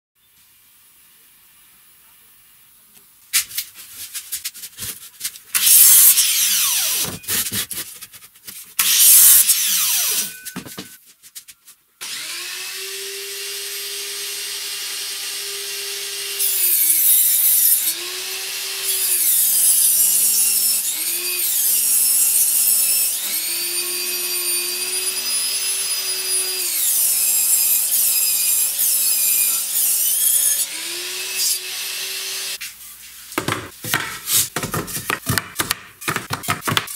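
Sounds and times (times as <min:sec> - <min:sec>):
table saw motor running: 0:05.6 - 0:07.2, 0:08.8 - 0:10.4, 0:12.0 - 0:16.8
bursts of sawing: 0:05.6 - 0:07.8, 0:08.8 - 0:10.4.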